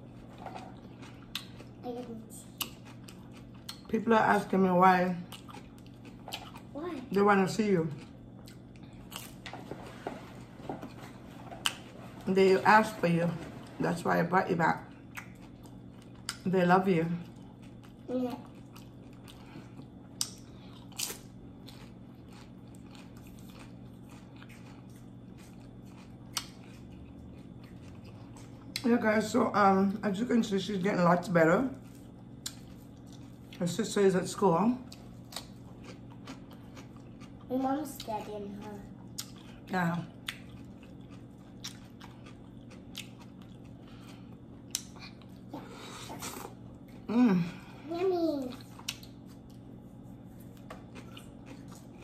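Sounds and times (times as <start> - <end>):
chewing crunches: 0.0 - 1.8, 2.4 - 3.9, 5.2 - 6.8, 7.9 - 12.0, 14.8 - 16.5, 17.2 - 28.9, 31.8 - 33.6, 34.8 - 47.1, 48.5 - 52.0
steady low hum: 0.0 - 52.0.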